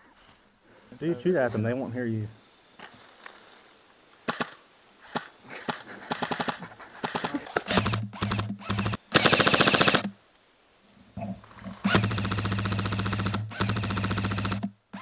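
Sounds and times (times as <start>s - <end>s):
airsoft rifle bursts: 4.2s - 10.2s, 11.8s - 15.0s
gearbox motor hum: 7.1s - 10.1s, 11.8s - 15.0s.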